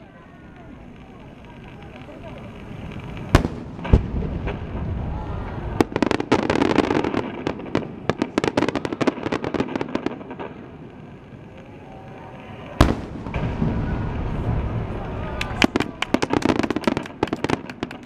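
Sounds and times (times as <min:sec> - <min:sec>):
firework shells bursting: 0:00.5 - 0:18.0
low rumble: 0:02.4 - 0:06.0, 0:13.0 - 0:15.6.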